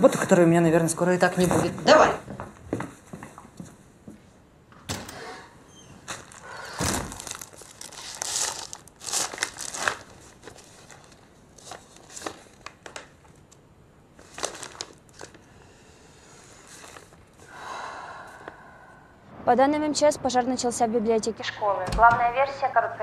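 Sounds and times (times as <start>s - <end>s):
paper rustling and crinkling: 6.0s - 13.6s, 14.2s - 15.5s, 16.6s - 17.2s.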